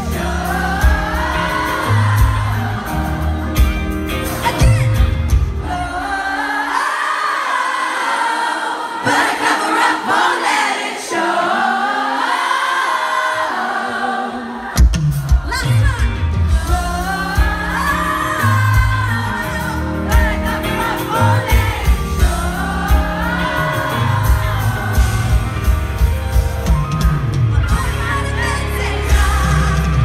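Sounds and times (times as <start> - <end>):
live pop band playing: 0.0 - 6.7, 14.6 - 30.0
woman singing: 15.4 - 25.6, 27.5 - 30.0.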